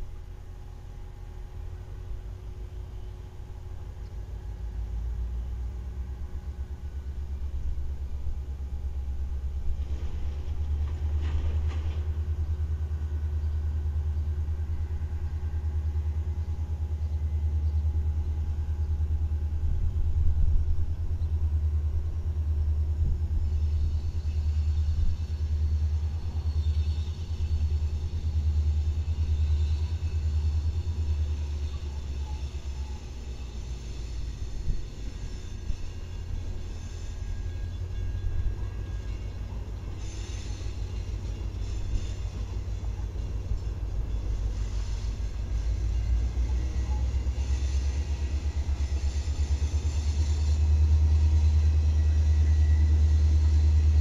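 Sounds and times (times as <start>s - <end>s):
diesel locomotive engine rumble: 0.0s - 54.0s
faint high squeal: 23.4s - 54.0s.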